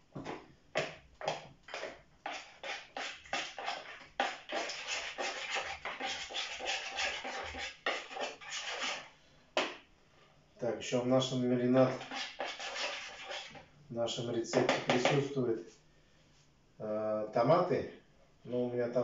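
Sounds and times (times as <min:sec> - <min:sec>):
spoon scraping plastic bowl: 0:01.7 - 0:09.1, 0:11.9 - 0:13.7.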